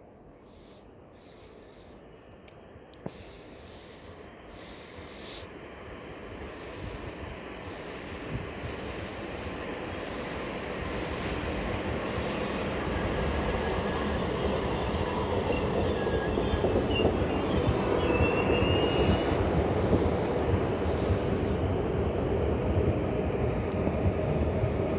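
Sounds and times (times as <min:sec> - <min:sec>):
train rumble: 0:02.4 - 0:24.9
train running gear squealing: 0:10.2 - 0:21.1.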